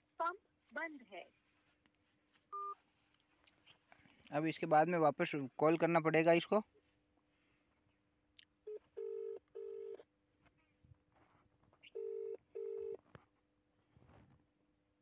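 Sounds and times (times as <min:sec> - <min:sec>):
phone ringback tone: 0:08.7 - 0:10.0, 0:11.9 - 0:13.0.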